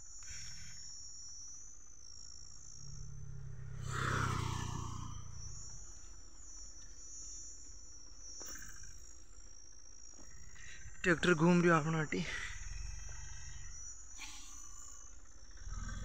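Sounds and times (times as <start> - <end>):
insects chirring: 0.0 - 16.0
low rumble: 2.8 - 6.2.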